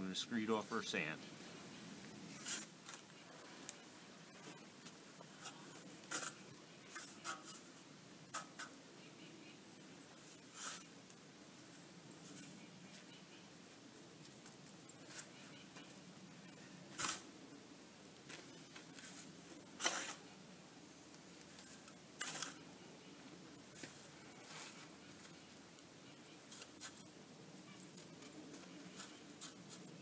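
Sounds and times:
gritty sand scraping: 2.2 - 8.8, 10.1 - 11.0, 18.3 - 20.3, 21.5 - 22.7, 28.4 - 30.0
faint rustles: 18.2 - 30.0.

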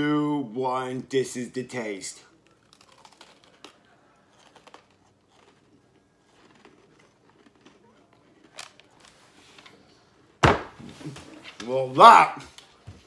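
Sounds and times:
crunching and chewing cookies: 1.6 - 10.4.

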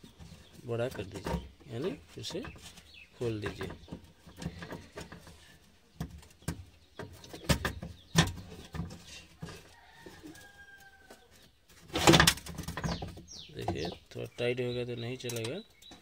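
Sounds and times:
metal clicks and knocks: 15.2 - 16.0.

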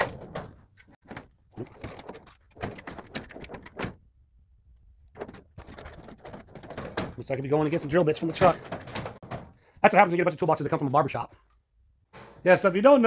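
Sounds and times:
metal drawers opening and shutting: 0.0 - 4.1, 5.1 - 9.6, 12.1 - 12.8.

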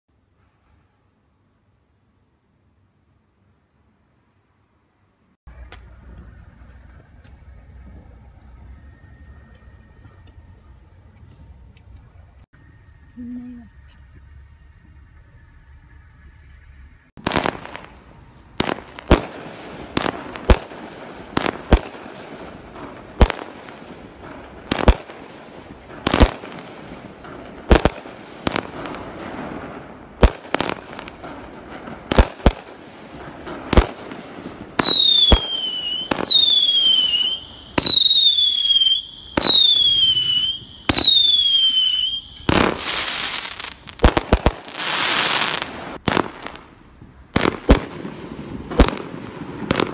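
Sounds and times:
falling fireworks whistles: 12.6 - 46.5
fireworks bangs: 17.1 - 49.9.

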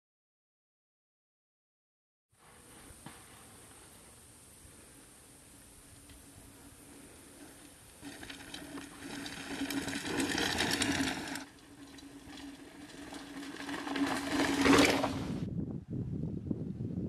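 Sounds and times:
tyres rushing over dirt: 2.4 - 15.4
bike hub ratchet buzzing: 5.6 - 15.2.

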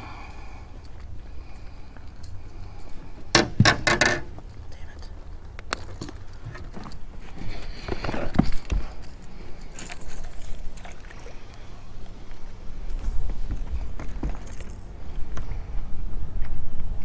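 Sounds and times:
steady low rumble: 0.0 - 17.0
fishing gear clicks and rustling: 0.8 - 3.3, 3.9 - 11.2, 12.1 - 15.4.

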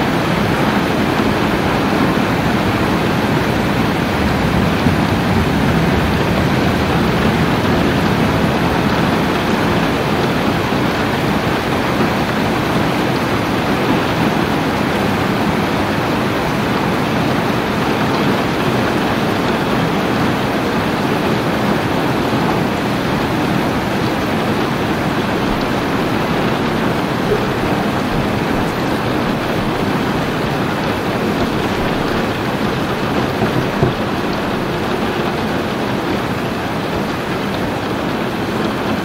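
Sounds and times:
steady rain hiss: 0.0 - 39.0.

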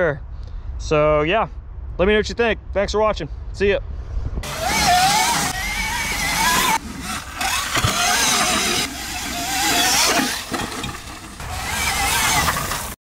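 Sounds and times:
wind: 0.0 - 13.0
electric motor whine: 4.4 - 13.0
tyres rushing on dirt: 4.4 - 13.0.

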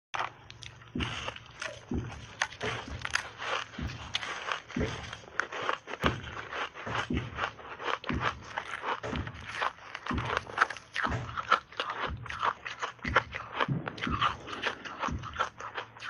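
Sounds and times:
crunching ice being chewed: 0.2 - 16.0.

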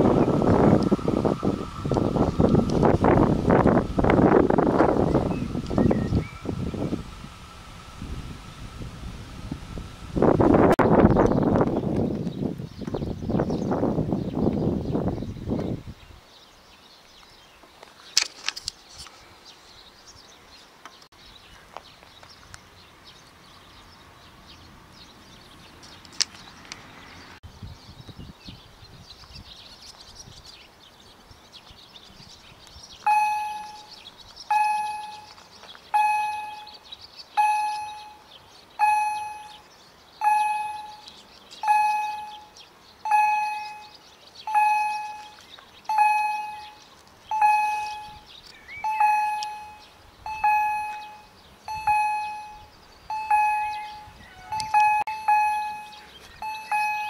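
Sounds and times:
level crossing warning bell: 33.1 - 57.0.

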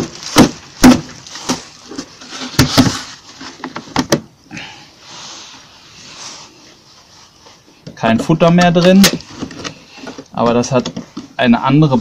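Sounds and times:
hive box knocked apart: 0.0 - 1.7
faint rustling: 5.0 - 12.0.

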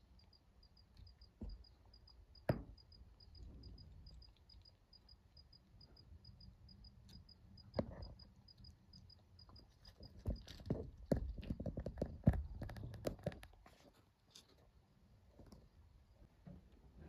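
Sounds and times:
cricket chirping: 0.0 - 11.4.

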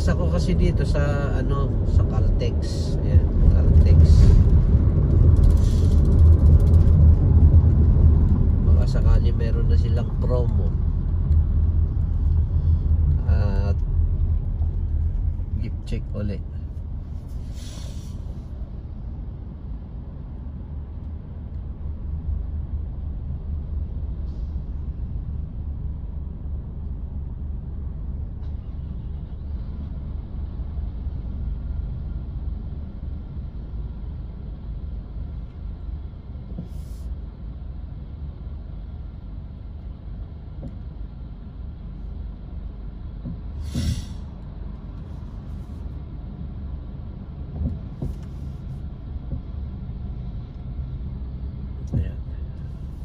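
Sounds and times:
car engine rumble: 0.0 - 53.0
air brakes hissing: 5.5 - 6.0, 17.4 - 18.4, 36.6 - 37.2, 43.5 - 44.4.

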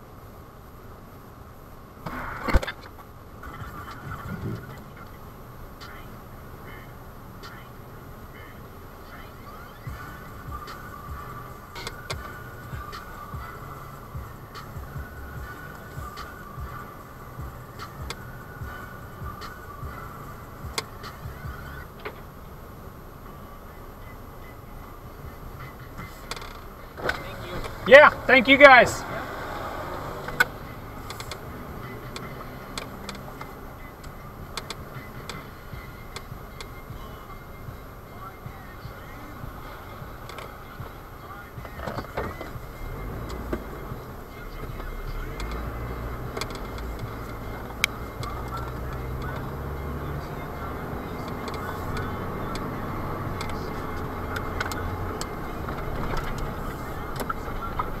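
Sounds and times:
road noise: 0.0 - 58.0
vehicle engine hum from inside: 0.0 - 58.0
sharp clicks: 30.2 - 35.4.

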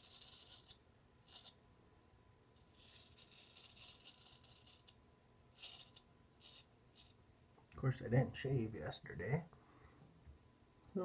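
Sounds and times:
razor scraping stubble: 0.0 - 1.6, 2.6 - 7.2.

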